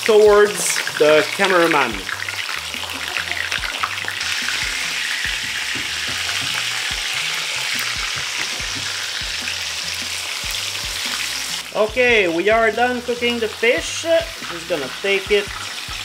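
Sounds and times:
fish sizzling in oil: 0:00.0 - 0:16.0
quiet background music: 0:00.0 - 0:16.0.

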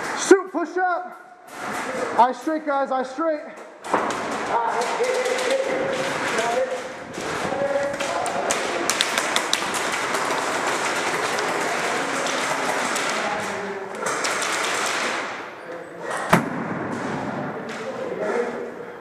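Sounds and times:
loud sharp crack: 0:03.9 - 0:15.5, 0:16.3 - 0:17.9
airsoft gunfire rattle: 0:08.6 - 0:15.4.

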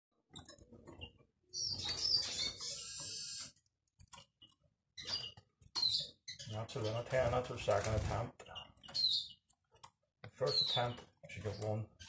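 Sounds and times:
bird twittering: 0:01.0 - 0:03.6, 0:08.8 - 0:09.4.

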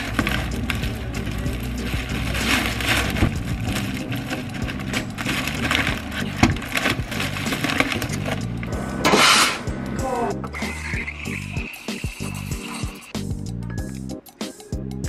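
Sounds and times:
plastic bag rustling: 0:00.0 - 0:09.6.

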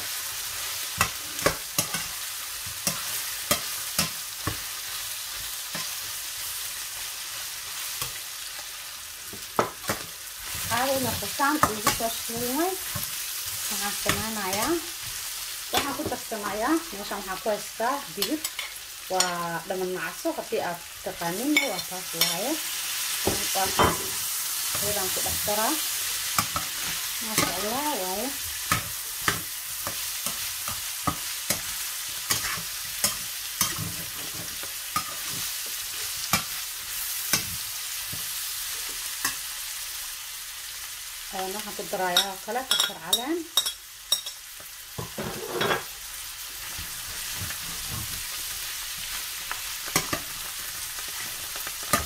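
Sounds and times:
food sizzling in frying pan: 0:00.0 - 0:52.0
spatula scraping pan: 0:23.2 - 0:38.3, 0:45.0 - 0:45.9.

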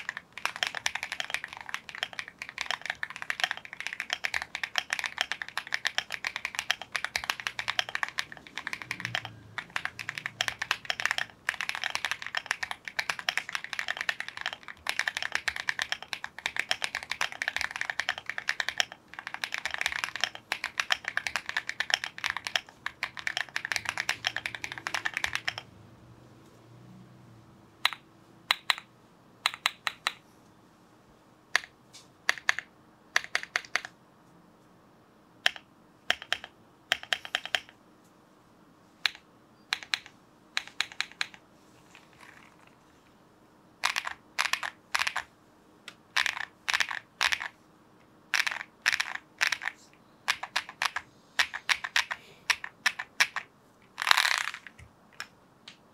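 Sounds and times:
fast typing on keyboard: 0:00.0 - 0:25.7, 0:32.3 - 0:34.0, 0:35.4 - 0:37.8, 0:39.0 - 0:41.4, 0:43.8 - 0:45.3, 0:46.1 - 0:47.6, 0:48.3 - 0:55.3
keyboard keys clacking: 0:00.0 - 0:25.7.

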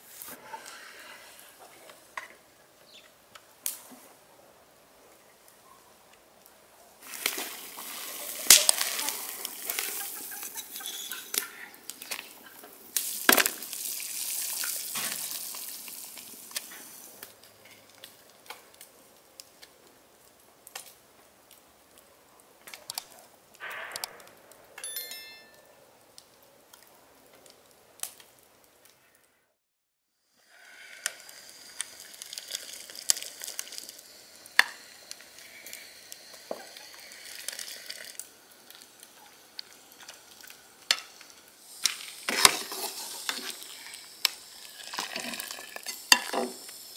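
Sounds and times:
water boiling in a pot: 0:06.9 - 0:22.3, 0:30.2 - 0:46.9.

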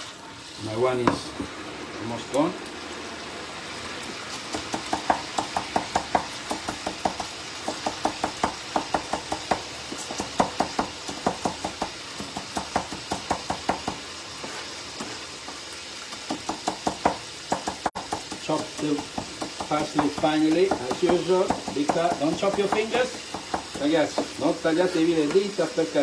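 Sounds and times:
oil sizzling in pan: 0:00.0 - 0:26.0
knife chopping on wooden board: 0:04.3 - 0:14.0, 0:16.1 - 0:24.4.

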